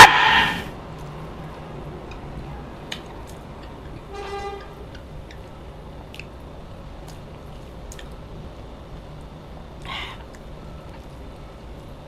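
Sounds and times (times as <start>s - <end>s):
brief horn-like toot: 0.0s - 0.7s, 4.1s - 4.8s
chewing and mouth clicks: 0.9s - 12.0s.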